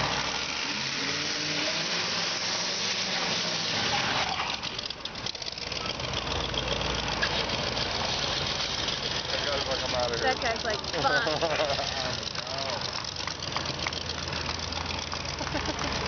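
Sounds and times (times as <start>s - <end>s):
engine revving hard: 0.0s - 4.4s.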